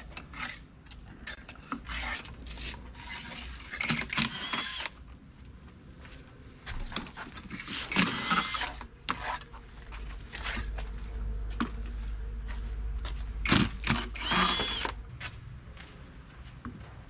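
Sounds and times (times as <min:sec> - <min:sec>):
cordless drill running: 0:03.9 - 0:05.0, 0:07.9 - 0:08.8, 0:13.4 - 0:15.0.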